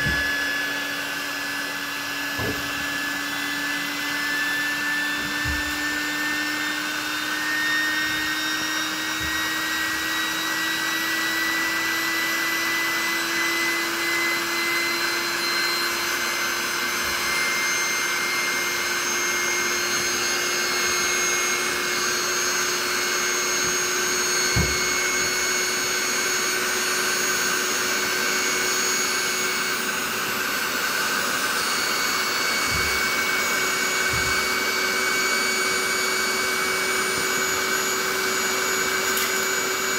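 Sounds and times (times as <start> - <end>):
electric air pump running: 0.0 - 39.9
thump: 2.3 - 2.8, 24.5 - 24.8.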